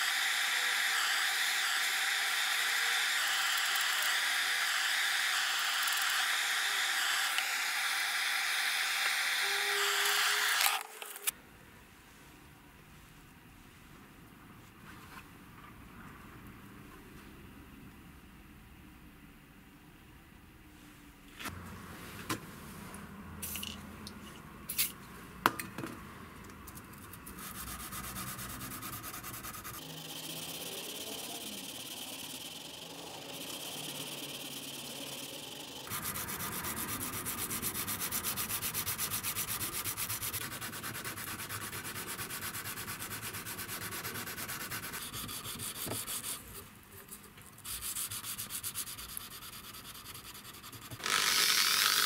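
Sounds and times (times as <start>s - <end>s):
abrasive sanding steel blade: 0.0s - 11.3s, 27.3s - 46.5s.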